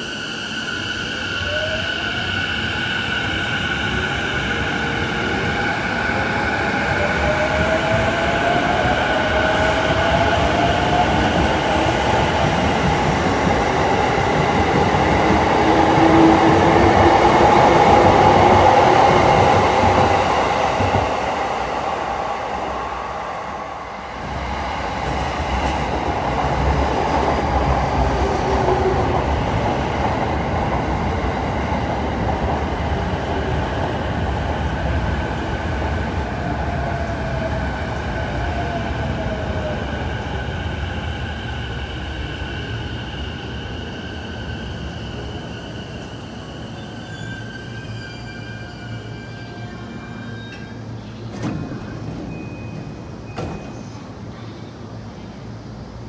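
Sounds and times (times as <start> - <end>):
train wheels on rail: 0.0 - 54.6.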